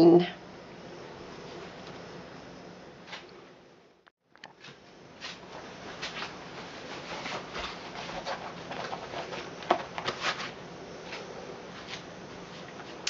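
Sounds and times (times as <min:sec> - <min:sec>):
rustling and light clattering: 0:04.4 - 0:13.0.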